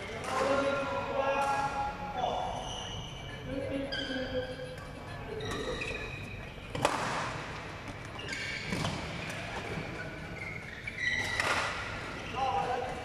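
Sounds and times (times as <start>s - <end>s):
shoes squeaking on court: 2.6s - 4.4s, 5.3s - 7.0s, 7.8s - 12.9s
racket hitting shuttlecock: 6.7s - 7.4s, 11.2s - 11.9s.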